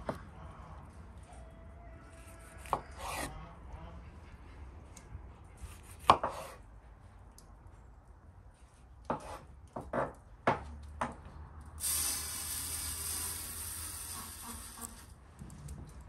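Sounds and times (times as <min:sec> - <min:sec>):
knife chopping on wooden board: 0:06.0 - 0:06.6.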